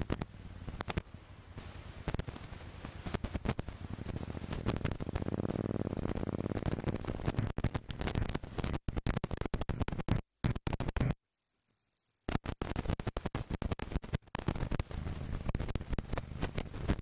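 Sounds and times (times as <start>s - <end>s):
motorcycle engine: 0.0s - 8.6s, 14.8s - 17.0s.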